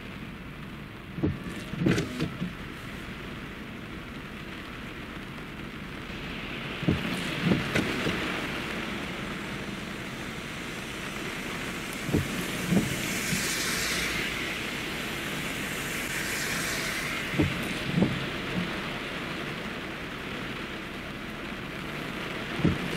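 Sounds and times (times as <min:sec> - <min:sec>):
heavy rain: 0:00.0 - 0:22.9
tyres hissing through water: 0:06.1 - 0:20.4.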